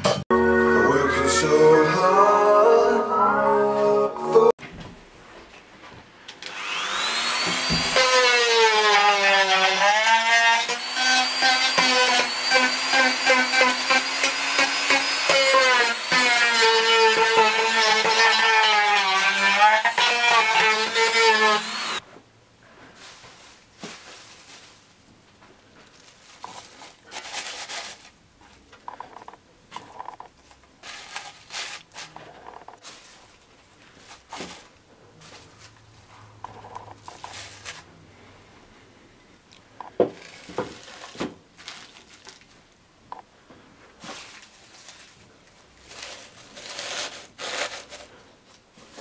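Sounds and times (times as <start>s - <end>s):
rotary tool sanding wood: 6.5s - 22.0s
rustling wood shavings: 22.7s - 25.0s, 30.8s - 35.8s, 40.2s - 42.7s, 44.0s - 49.0s.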